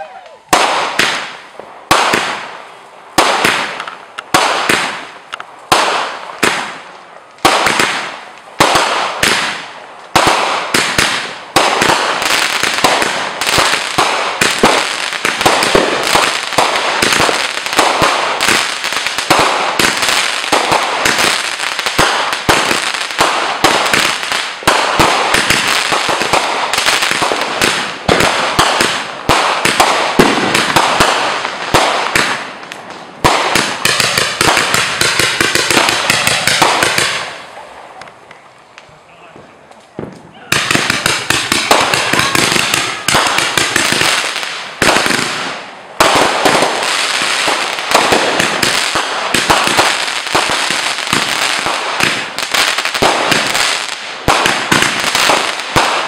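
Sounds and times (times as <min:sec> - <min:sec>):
fireworks bangs and crackling: 0:00.0 - 0:56.0.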